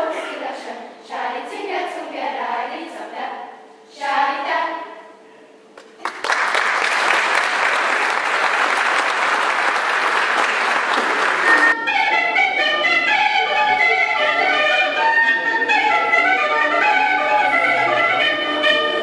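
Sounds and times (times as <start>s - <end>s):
children's choir singing: 0.0s - 5.2s, 11.2s - 19.0s
audience clapping: 5.8s - 11.8s
instrumental music: 11.0s - 19.0s.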